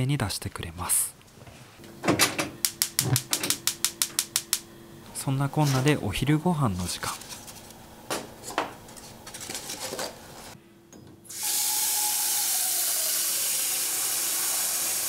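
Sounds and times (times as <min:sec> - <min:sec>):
bamboo steamer knocking and clicking: 0:02.6 - 0:04.6.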